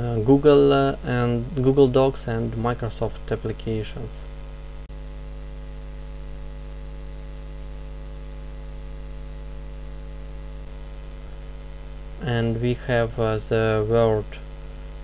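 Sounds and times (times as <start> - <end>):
faint hiss: 0.0 - 4.9, 10.2 - 15.0
electrical mains hum: 0.0 - 15.0.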